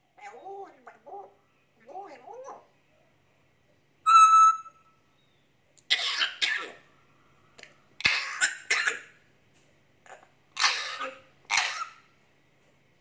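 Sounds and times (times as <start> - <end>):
high whistle: 4.1 - 4.8
parrot coughing: 5.9 - 6.9, 8.0 - 9.2, 10.1 - 12.1.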